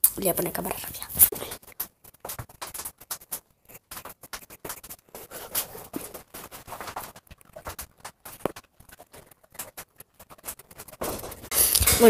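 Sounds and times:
pencil scratching on paper: 3.1s - 11.8s.

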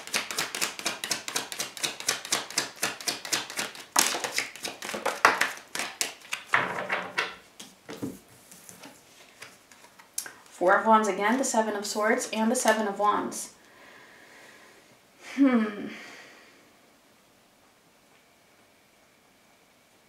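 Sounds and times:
cards being shuffled: 0.0s - 6.6s, 7.6s - 10.5s
cards slapped on wooden table: 0.1s - 8.2s.

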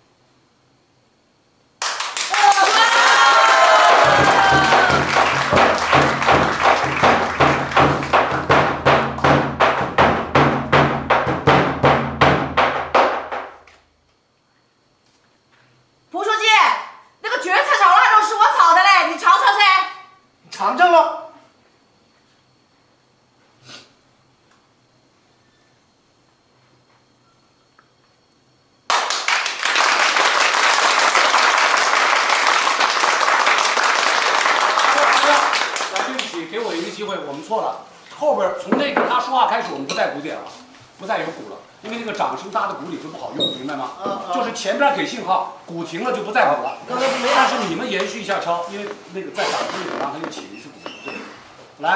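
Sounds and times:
crowd applauding: 1.8s - 9.3s, 28.9s - 36.5s
drum beaten with a stick: 4.0s - 13.6s.

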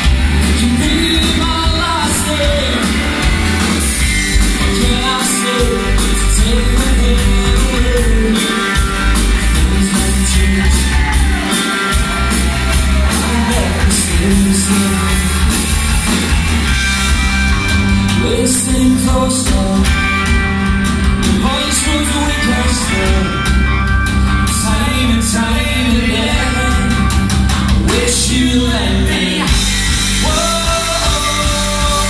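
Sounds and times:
singer's vocals: 0.0s - 3.2s, 4.4s - 16.2s, 18.0s - 20.5s, 21.1s - 32.0s
rock band playing: 0.0s - 32.0s.

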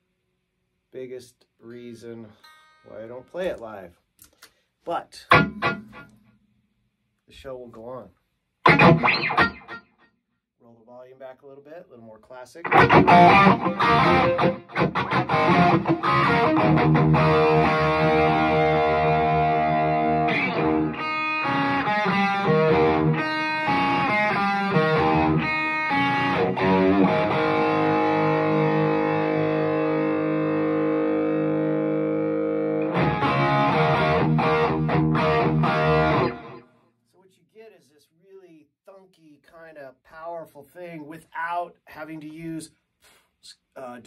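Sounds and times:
electric guitar chords and riff: 5.3s - 6.3s, 8.7s - 9.9s, 12.7s - 36.7s.

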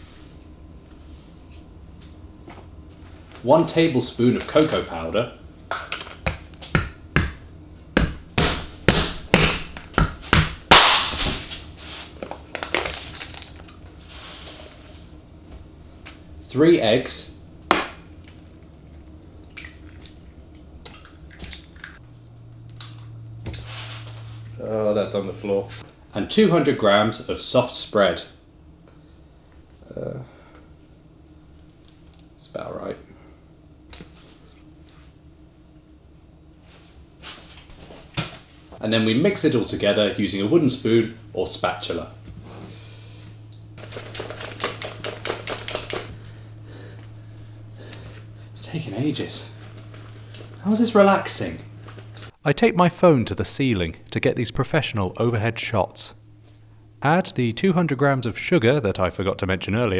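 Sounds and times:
low steady hum: 0.0s - 59.9s
eggshells cracking: 12.5s - 13.8s, 43.8s - 46.1s.

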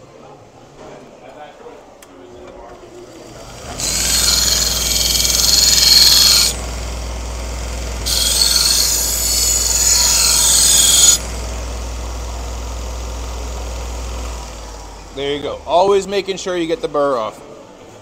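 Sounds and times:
belt grinder motor hum: 3.2s - 12.5s.

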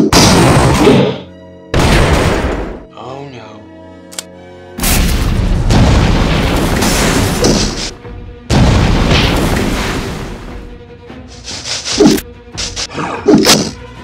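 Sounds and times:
explosion blasts with deep rumble: 1.8s - 2.8s, 4.8s - 7.7s, 8.5s - 10.5s.

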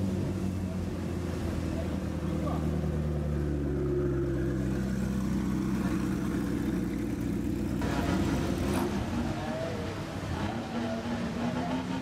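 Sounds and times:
motorcycle engine at low revs: 0.0s - 9.5s
car engine at low revs: 0.0s - 12.0s.

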